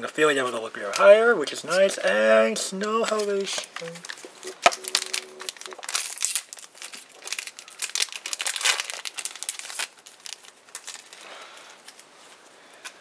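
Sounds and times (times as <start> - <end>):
foil wrapper crinkling and tearing: 3.2 - 13.0.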